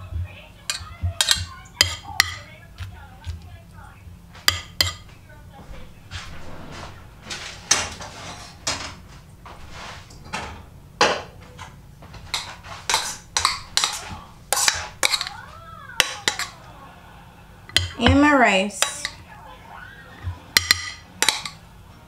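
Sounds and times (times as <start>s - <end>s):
metal spoon clinking on pot: 0.7s - 2.5s, 4.5s - 5.0s, 12.9s - 15.4s, 16.0s - 16.6s, 18.8s - 19.2s, 20.6s - 21.6s.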